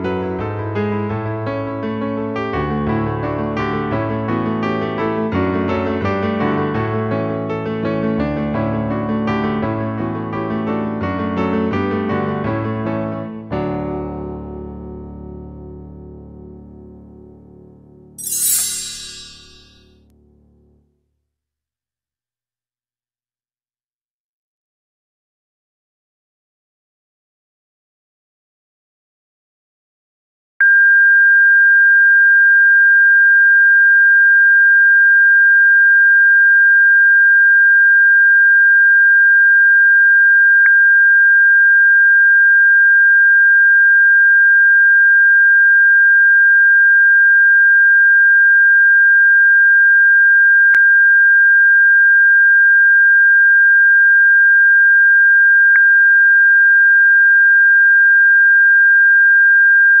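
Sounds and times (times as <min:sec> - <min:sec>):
high-pitched electronic tone: 0:18.2 - 0:19.8.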